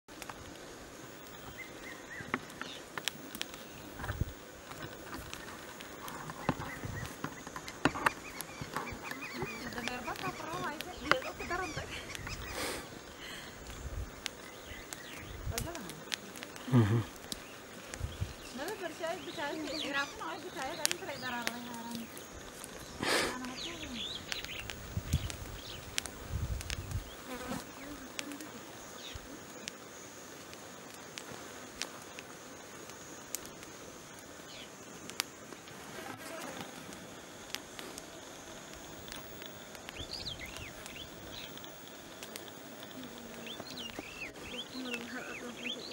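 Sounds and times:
faint steady hiss: 0.1 - 45.9
flying insects buzzing: 0.1 - 45.9
sharp clicks: 24.2 - 27.1, 38.7 - 45.2.

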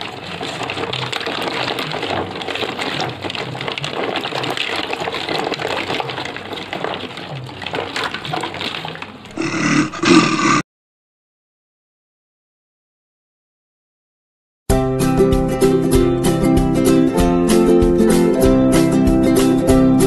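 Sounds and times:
water sloshing and splashing: 0.0 - 9.4
plastic balls knocking together: 0.0 - 10.6.

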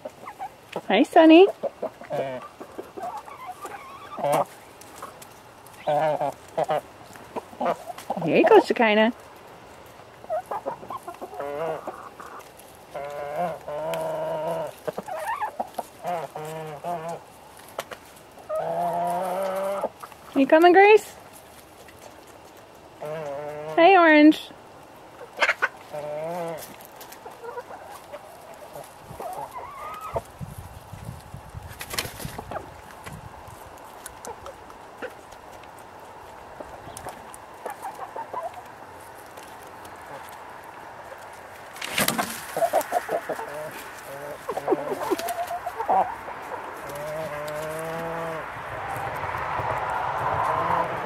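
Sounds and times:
hens clucking and calling: 0.0 - 51.0
hen long drawn-out call: 10.3 - 17.3, 27.3 - 30.2, 42.5 - 49.2, 50.3 - 51.0.

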